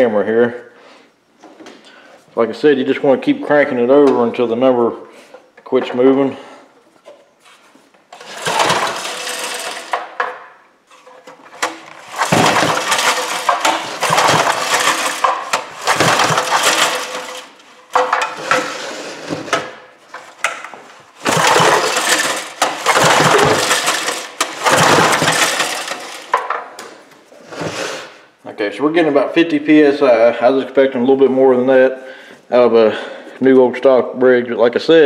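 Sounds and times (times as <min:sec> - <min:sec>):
engine cranked with recoil starter: 0:08.1 - 0:20.6, 0:21.2 - 0:26.6.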